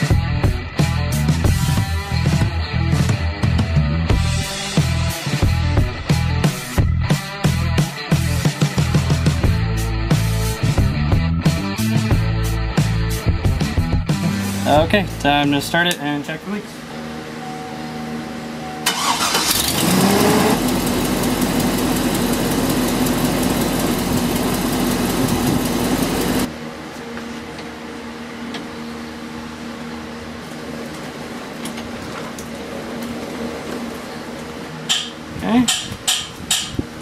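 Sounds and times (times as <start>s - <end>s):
truck engine starting and running: 18.8s - 26.5s.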